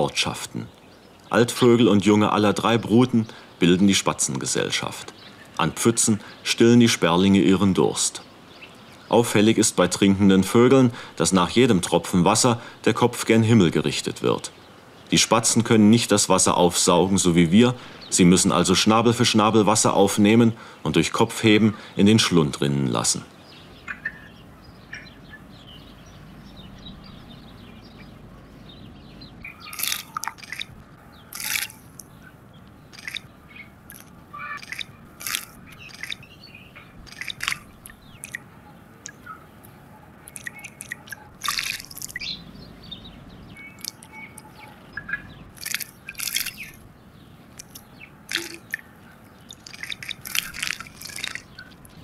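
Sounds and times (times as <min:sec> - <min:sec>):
faint steady hiss: 0:00.0 - 0:52.0
birds splashing in puddle: 0:29.4 - 0:39.3, 0:40.2 - 0:42.4, 0:43.6 - 0:52.0.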